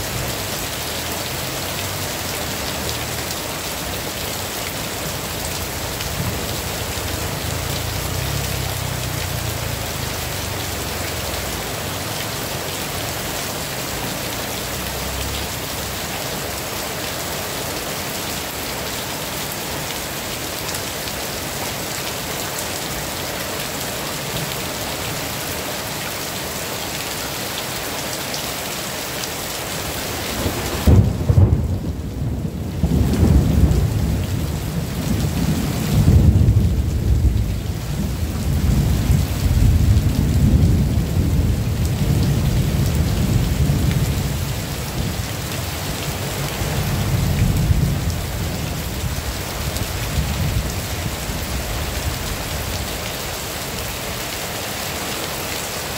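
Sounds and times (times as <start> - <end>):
heavy rain: 0.0 - 55.9
thunder clap and rumble: 30.4 - 45.2.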